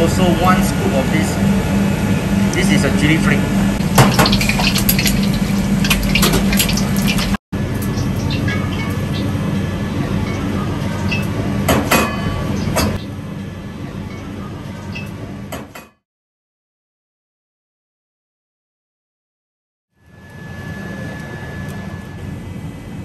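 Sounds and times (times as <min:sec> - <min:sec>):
low hum: 0:00.0 - 0:11.7, 0:20.0 - 0:23.0
eggs sizzling in hot oil: 0:03.8 - 0:07.4.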